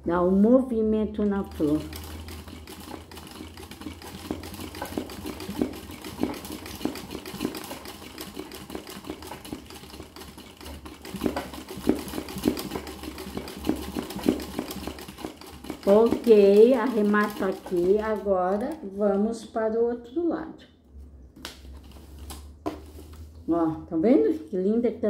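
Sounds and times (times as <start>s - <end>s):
sewing machine stitching: 1.2s - 19.0s.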